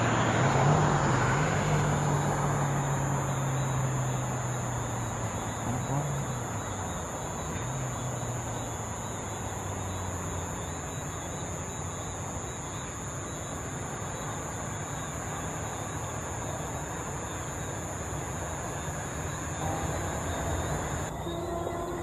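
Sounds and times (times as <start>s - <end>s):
high-pitched whine: 19.2s - 22.0s.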